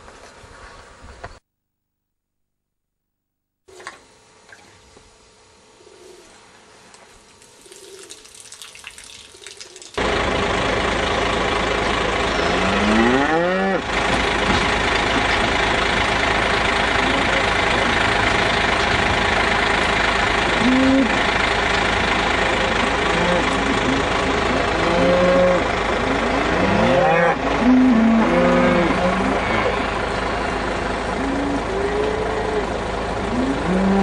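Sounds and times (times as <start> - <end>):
cattle mooing: 12.4 - 13.9, 20.6 - 21.2, 23.1 - 24.1, 24.7 - 30.0, 31.1 - 34.0.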